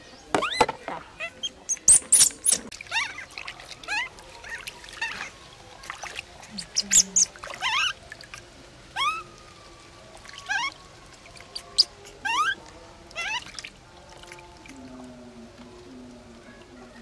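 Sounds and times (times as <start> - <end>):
infant monkey squealing: 1.2 - 3.3, 3.9 - 5.3, 6.6 - 8.0, 9.0 - 9.3, 10.5 - 10.8, 11.5 - 12.6, 13.2 - 13.6
water splashing and pouring: 1.6 - 17.0.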